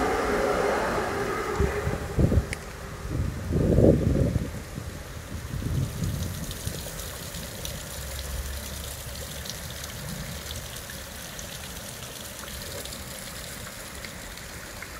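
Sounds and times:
low rumble: 0.0 - 4.8
rain on wet pavement: 2.0 - 14.9
raindrop ticks: 5.9 - 14.9.

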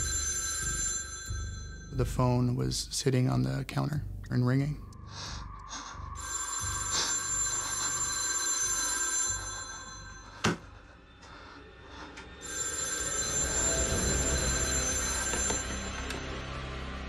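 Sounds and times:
telephone bell ringing: 0.0 - 2.1, 6.2 - 10.6, 12.4 - 16.5.

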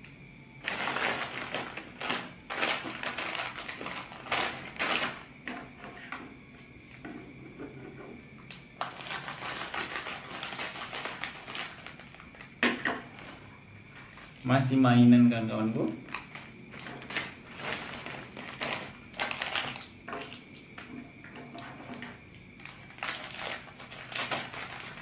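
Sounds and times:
plastic snack packets crinkling: 0.6 - 5.3, 8.8 - 13.4, 15.6 - 20.5, 21.9 - 25.0.

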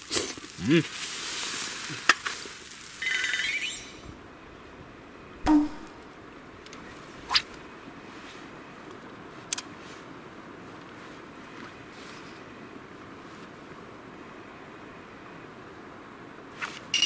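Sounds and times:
swoosh-like hits: 5.5 - 6.0.

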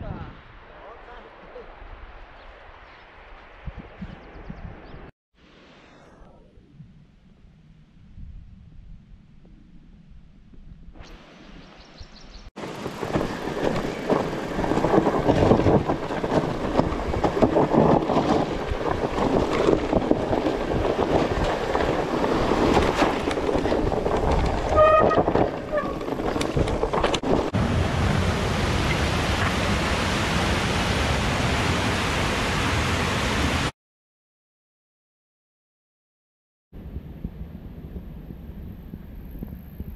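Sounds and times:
wind on microphone: 1.5 - 5.1, 6.0 - 32.3, 36.8 - 39.9
bike rattling: 12.6 - 27.5
tyres crunching over dirt and stones: 12.6 - 27.5
mountain torrent rushing: 12.6 - 33.7
brake squeal: 24.7 - 26.0.

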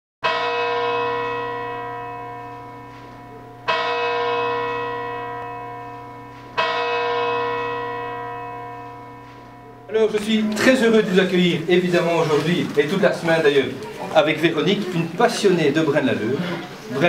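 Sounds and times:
church bell tolling: 0.2 - 12.4.

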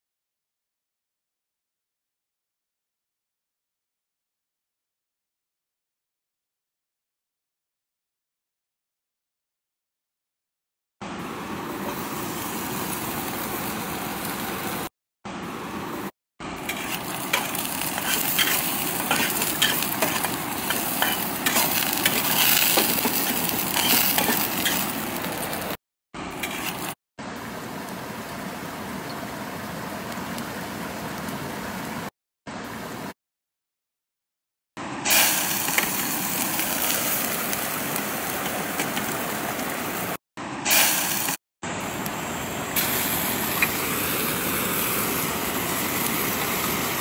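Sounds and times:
fat sizzling in a frying pan: 11.9 - 14.9, 16.6 - 25.8, 35.1 - 40.1, 40.7 - 41.4, 42.8 - 47.0.

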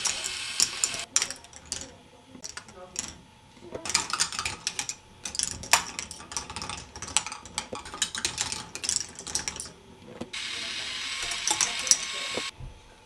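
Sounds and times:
plastic balls clattering on track: 0.0 - 10.4, 11.2 - 12.5.

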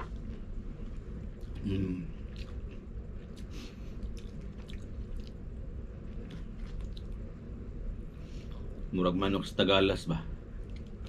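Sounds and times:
low background hum: 0.0 - 11.0
chewing crispy fried chicken: 1.2 - 7.2.

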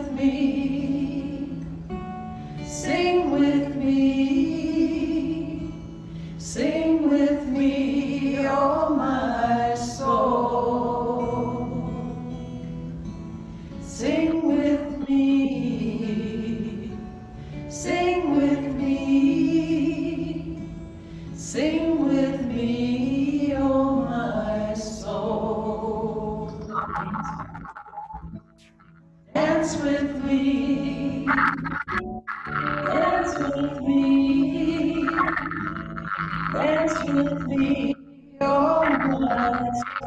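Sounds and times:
women singing in unison: 0.0 - 1.8, 2.6 - 5.8, 6.4 - 12.3, 13.9 - 17.1, 17.7 - 20.7, 21.4 - 26.7, 29.3 - 31.6, 32.7 - 40.0
strummed acoustic guitar: 0.0 - 40.0.

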